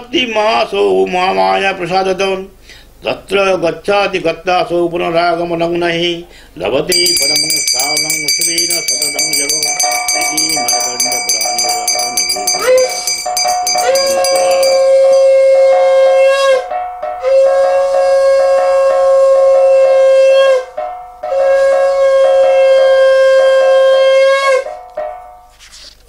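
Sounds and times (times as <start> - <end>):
metal gong beaten rapidly: 6.9 - 15.4.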